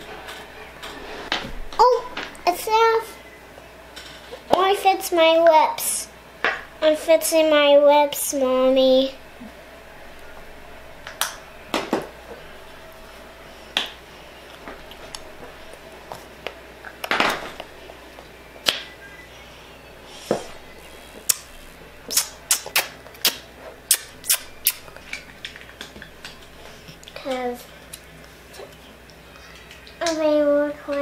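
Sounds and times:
child's lips smacking: 22.1 - 26.4.

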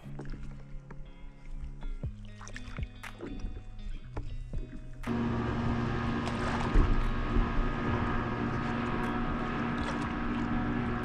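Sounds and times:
paddle splashing in water: 2.3 - 3.6, 5.1 - 11.0
motor drone: 5.1 - 11.0.

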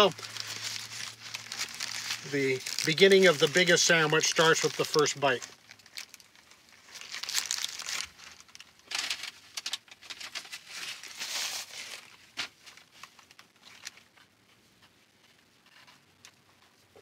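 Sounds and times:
paper napkin rustling: 0.0 - 5.4
paper wrapper crinkling: 0.0 - 14.2.

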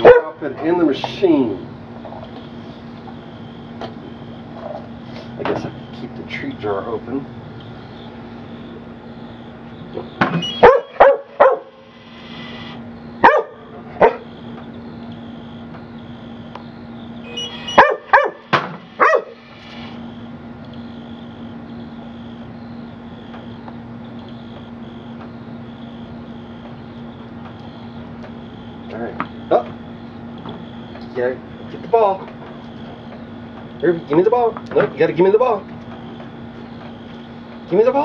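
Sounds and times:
dog barking: 0.0 - 0.4, 10.6 - 11.8, 13.2 - 14.3, 17.7 - 19.4.

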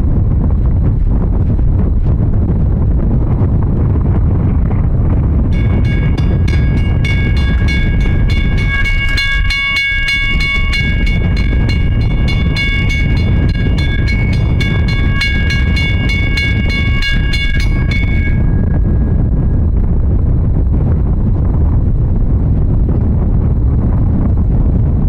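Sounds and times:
heavy low rumble: 0.0 - 25.0
steam exhaust chuffs: 5.4 - 19.8.

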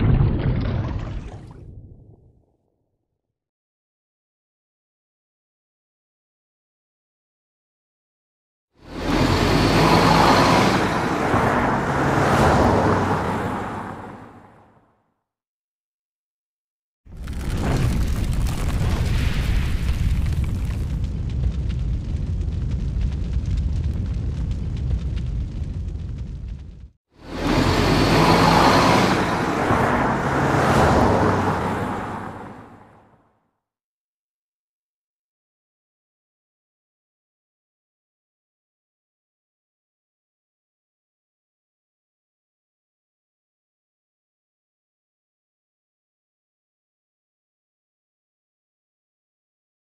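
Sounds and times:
vehicles passing on street: 8.8 - 14.9, 27.2 - 33.2
deep rumble: 17.1 - 28.3.

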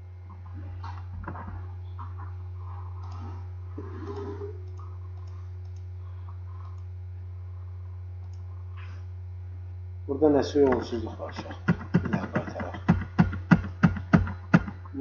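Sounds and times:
low electrical hum: 0.0 - 15.0
computer mouse clicks: 3.0 - 3.3, 4.1 - 5.9, 8.2 - 8.5.

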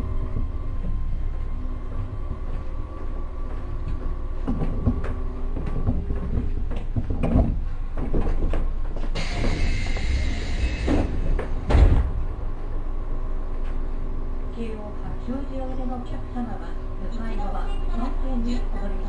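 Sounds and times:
train low rumble: 0.0 - 19.0
sliding doors thumping: 4.4 - 12.3
compressed air hissing: 9.2 - 11.2.

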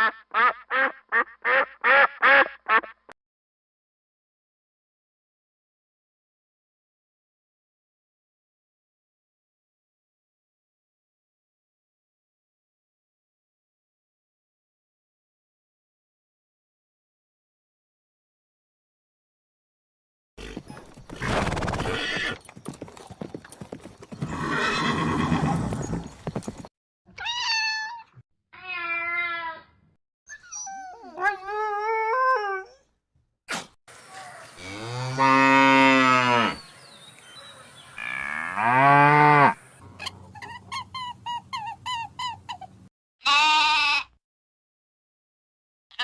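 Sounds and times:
lamb bleating: 43.2 - 44.2.

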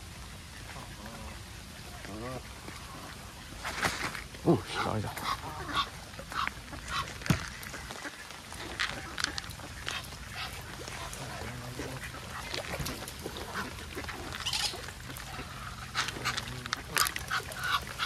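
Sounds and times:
ducks quacking: 0.5 - 3.4, 4.4 - 18.0
geese honking: 13.3 - 18.0.

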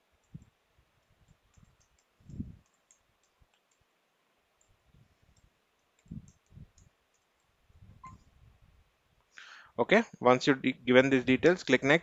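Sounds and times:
mouse clicks: 0.2 - 3.8, 4.6 - 8.2
keyboard typing: 1.2 - 3.9, 4.6 - 8.2.

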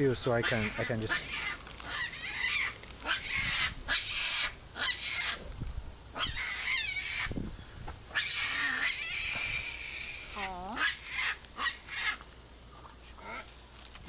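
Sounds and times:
monkeys squealing: 0.3 - 5.5, 6.1 - 7.4, 8.1 - 12.2.

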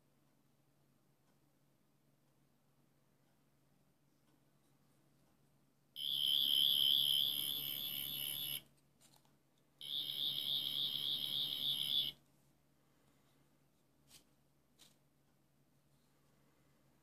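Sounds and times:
electronic warbling buzz: 6.0 - 8.6, 9.8 - 12.1.

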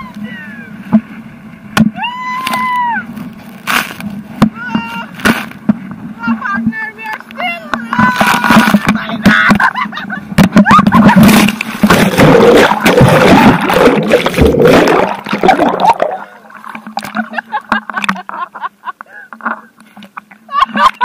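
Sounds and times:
water splashing on microphone: 7.8 - 9.4, 10.7 - 18.2.

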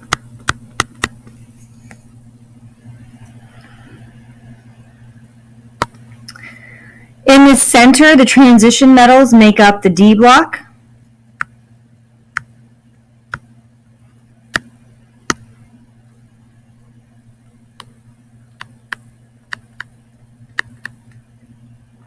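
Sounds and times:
stylus tapping tablet screen: 0.0 - 2.0, 14.5 - 15.5, 18.6 - 21.2
steady low hum: 0.0 - 22.0.

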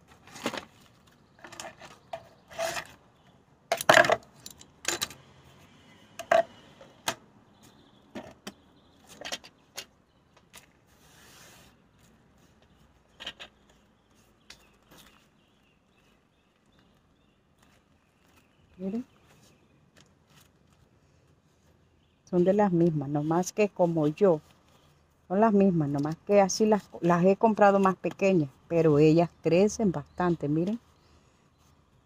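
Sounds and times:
soft rustle of plants: 0.0 - 3.6, 4.3 - 32.0
plant pots knocking and clattering: 3.7 - 5.2, 6.2 - 7.2, 8.1 - 10.6.

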